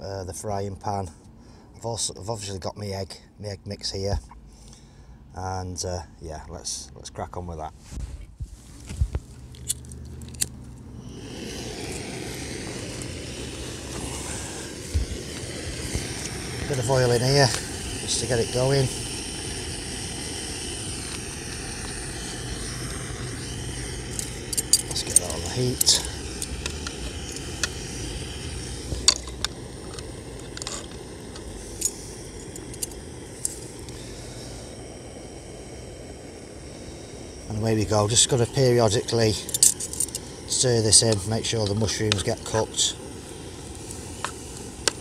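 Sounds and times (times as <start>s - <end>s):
gas burner hissing: 7.9s - 45.0s
stove igniter clicks: 24.2s - 32.0s.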